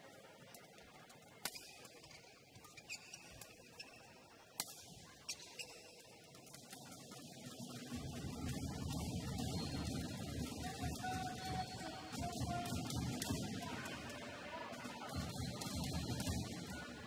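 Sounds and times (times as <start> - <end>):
shoe squeaks on court: 2.0 - 4.0.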